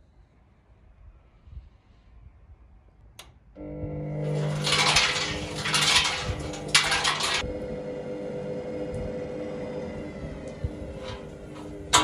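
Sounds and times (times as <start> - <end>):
washing machine hum: 3.6 - 12.0
fireworks crackling in steel drum: 4.2 - 7.5.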